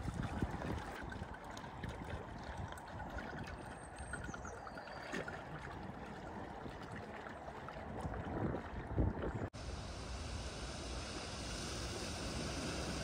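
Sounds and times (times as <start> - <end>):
floodwater running and sloshing: 0.0 - 9.6.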